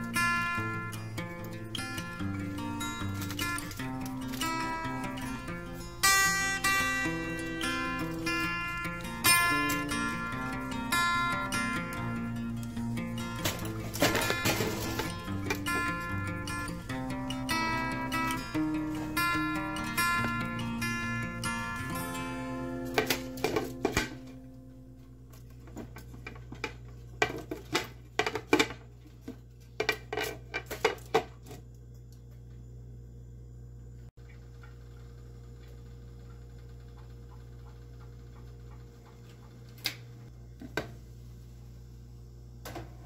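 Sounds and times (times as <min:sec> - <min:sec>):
steady low hum: 0:00.0 - 0:28.2.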